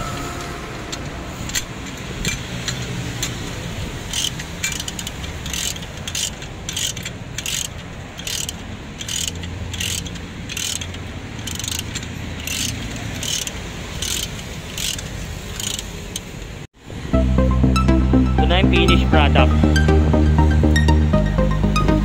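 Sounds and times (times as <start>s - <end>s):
ratchet wrench clicking: 4.0s - 16.5s.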